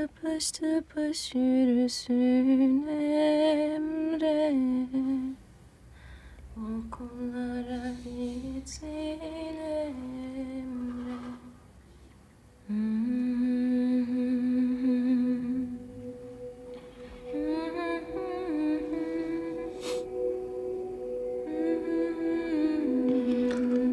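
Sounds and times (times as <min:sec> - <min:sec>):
woman humming a lullaby: 0:12.6 - 0:23.9.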